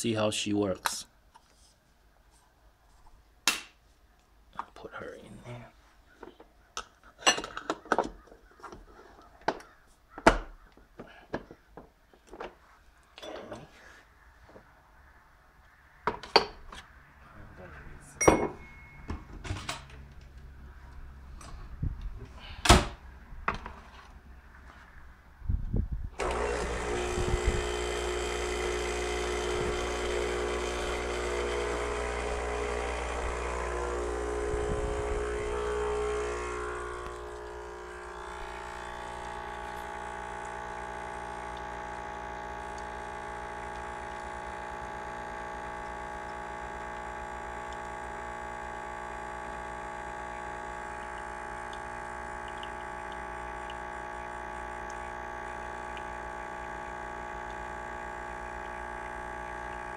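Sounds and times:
espresso maker pump humming: 26.2 - 59.9.

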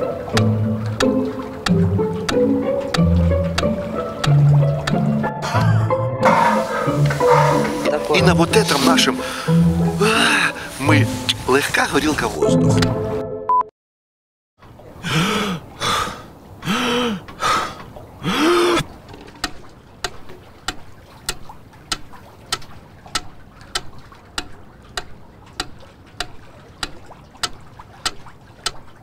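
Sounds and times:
metronome ticking: 0.0 - 11.5, 19.4 - 28.9
man sighing: 5.4 - 7.7, 9.2 - 10.7, 15.0 - 18.8.

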